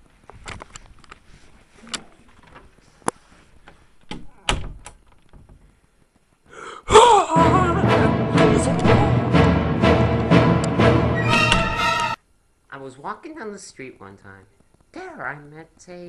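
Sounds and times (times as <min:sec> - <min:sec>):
loud music: 0:07.3 - 0:12.2.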